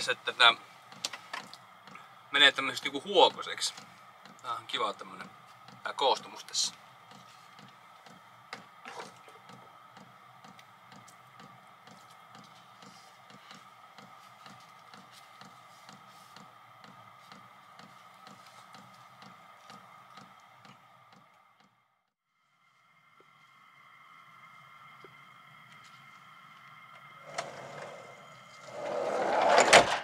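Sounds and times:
faint hum: 0.0s - 30.0s.

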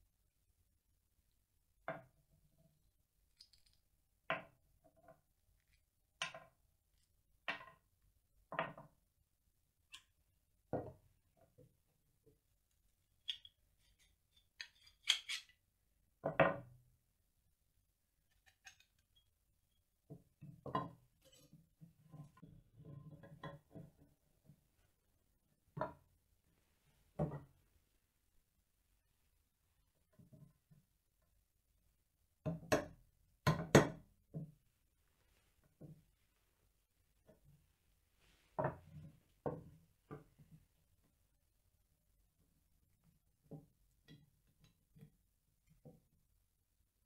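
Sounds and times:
metal parts clinking on wood: 3.4s - 3.8s, 13.2s - 15.5s.

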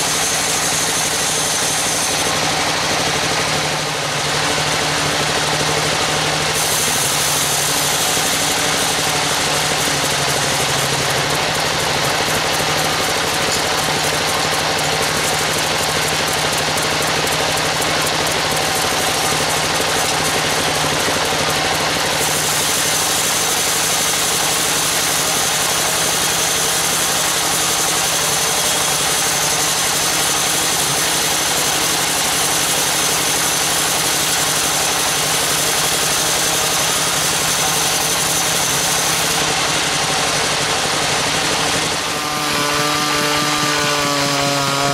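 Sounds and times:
band saw cutting wood: 0.0s - 44.9s.

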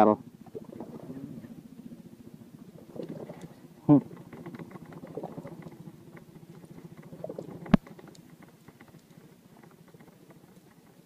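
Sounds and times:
fishing line winding onto spool: 2.8s - 11.0s.

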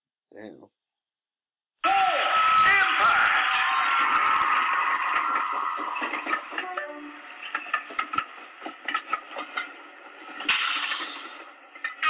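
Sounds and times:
clicks and knocks: 5.1s - 10.6s.

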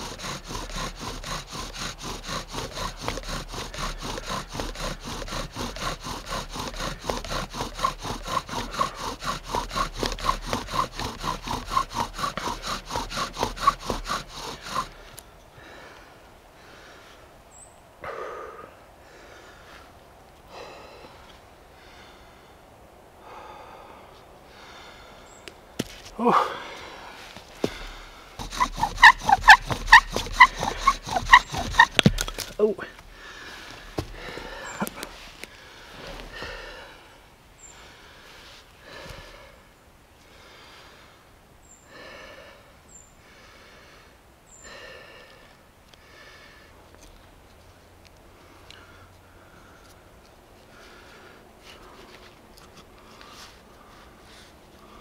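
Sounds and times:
wooden spindle rasping: 0.0s - 15.2s, 27.4s - 36.8s
man breathing hard: 0.0s - 17.3s, 18.0s - 25.4s, 26.1s - 46.9s, 48.3s - 52.3s, 52.9s - 55.0s.

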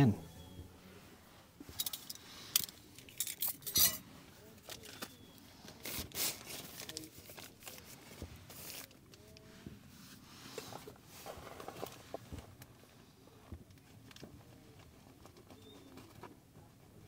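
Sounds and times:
plastic packs crinkling and clicking: 4.6s - 9.2s.

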